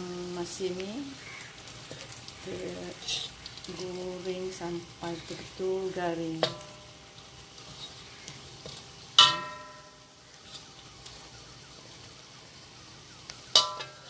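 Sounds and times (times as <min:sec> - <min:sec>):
fish sizzling in oil: 0:00.0 - 0:14.0
metal spatula clanging on wok: 0:06.3 - 0:06.9, 0:09.2 - 0:10.1, 0:13.5 - 0:14.0.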